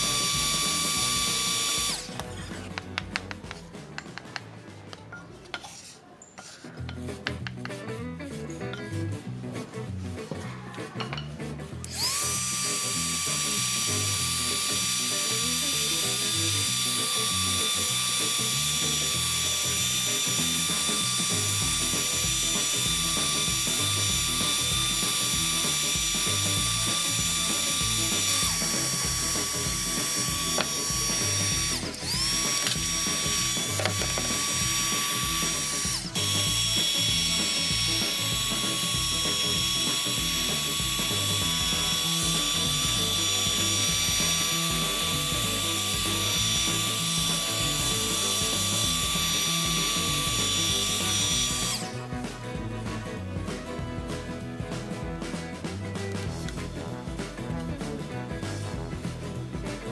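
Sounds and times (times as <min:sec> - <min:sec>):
heat gun fan whining: 0:00.0 - 0:02.7, 0:11.8 - 0:52.2.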